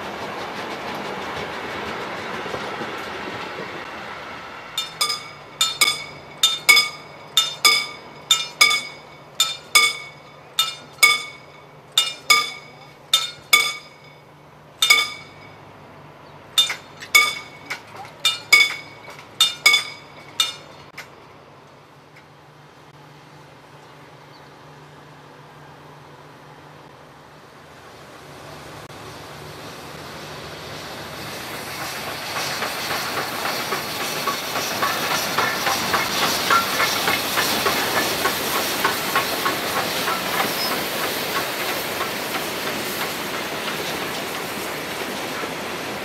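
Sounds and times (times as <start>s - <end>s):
train coaches rolling on rails: 0.0s - 46.0s
level crossing warning bell: 4.8s - 15.7s.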